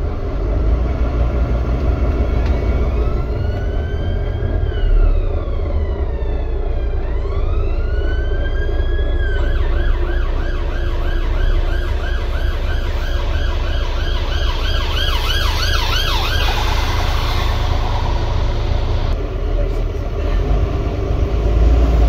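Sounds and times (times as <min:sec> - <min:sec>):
bus diesel engine droning: 0:00.0 - 0:22.0
emergency siren wailing and yelping: 0:01.9 - 0:19.2.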